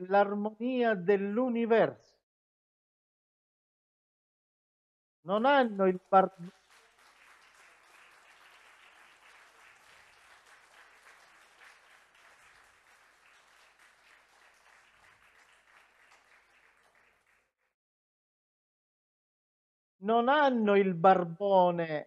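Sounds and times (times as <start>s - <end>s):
faint audience applause: 5.4s - 17.7s.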